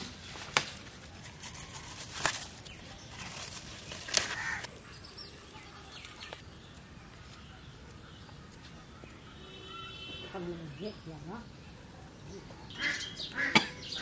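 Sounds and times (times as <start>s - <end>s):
leaves picked from plant: 0.0s - 4.7s.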